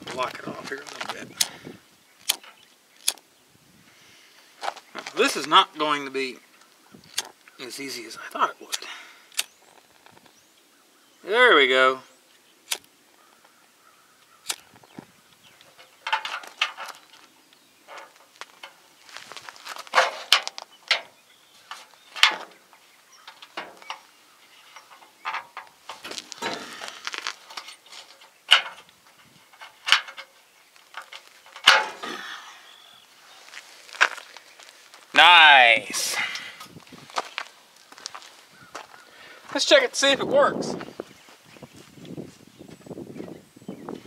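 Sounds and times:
rustling near microphone: 0.0s - 3.1s, 13.1s - 35.2s, 35.8s - 44.0s
sharp clicks: 0.9s - 1.6s, 2.2s - 3.3s, 6.6s - 7.6s, 8.7s - 10.3s, 12.6s - 13.0s, 14.4s - 14.8s.

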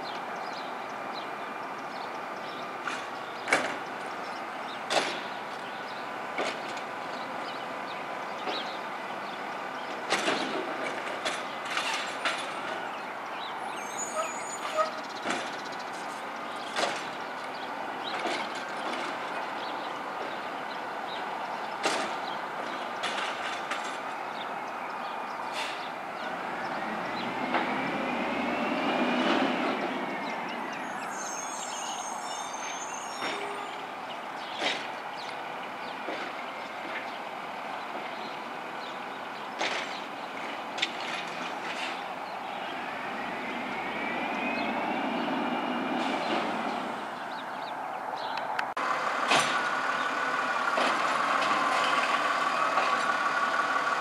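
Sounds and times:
rising and falling squeal: 13.7s - 15.1s, 26.7s - 34.0s, 42.3s - 47.4s
garbage truck engine and hydraulics: 48.6s - 54.0s
bangs and clanks of carts dumping: 49.1s - 53.2s.

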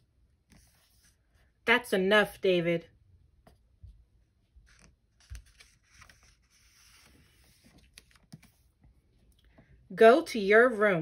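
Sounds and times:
book page rustle: 4.5s - 9.2s.

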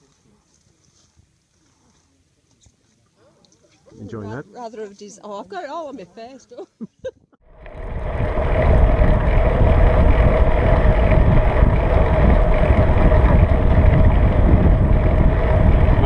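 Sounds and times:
wind rushing over microphone: 7.5s - 16.0s.

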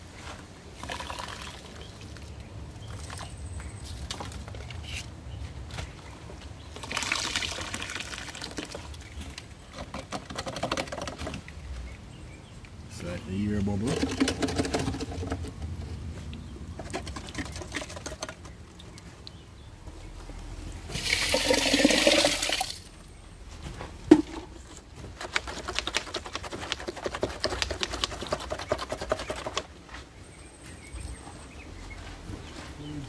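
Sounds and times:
liquid splashing: 6.8s - 9.2s, 20.9s - 22.9s.

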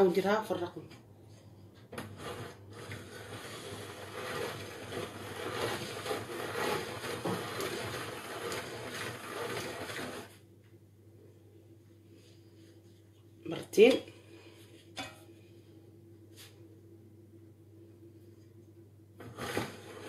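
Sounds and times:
pasta machine gears grinding: 2.0s - 10.4s, 19.2s - 20.0s.

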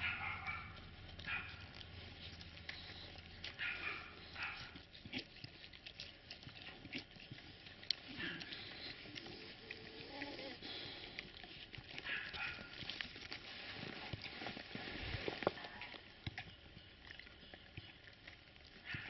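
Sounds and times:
puppies snuffling: 0.0s - 19.0s
rustling and crunching in snow: 12.4s - 15.8s.

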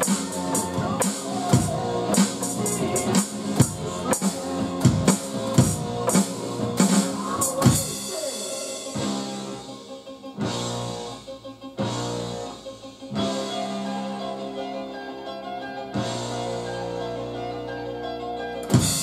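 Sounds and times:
drum kit playing: 0.0s - 13.7s, 18.6s - 19.0s
recorded music: 0.0s - 19.0s.

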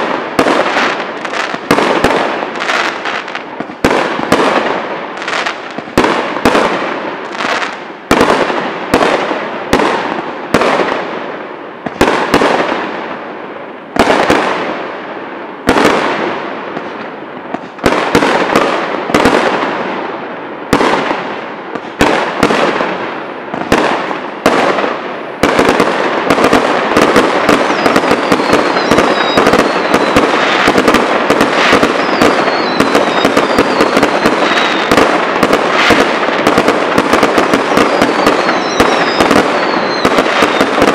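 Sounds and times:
fireworks crackling barrage: 0.0s - 40.9s
firework shells bursting: 25.4s - 40.9s
faint falling whistles: 32.0s - 34.0s, 38.4s - 40.6s.

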